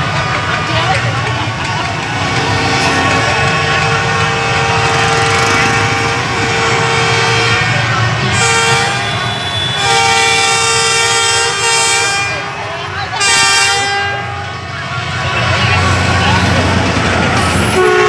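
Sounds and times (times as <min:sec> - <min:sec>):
traffic noise: 0:00.0 - 0:18.0
motorbike horns blowing: 0:02.1 - 0:15.6, 0:17.5 - 0:18.0.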